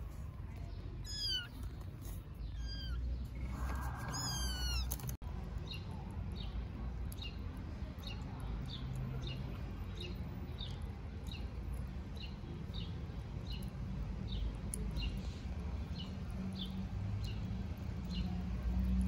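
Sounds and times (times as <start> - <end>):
low background rumble: 0.0 - 19.0
kittens meowing: 1.0 - 1.8, 2.4 - 5.2.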